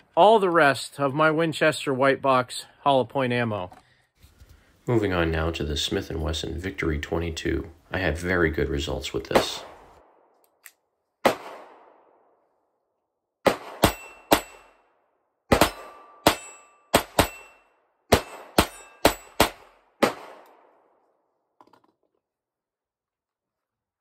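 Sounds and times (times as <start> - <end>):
pistol shots: 11.2 - 12.2, 13.4 - 14.8, 15.5 - 20.8.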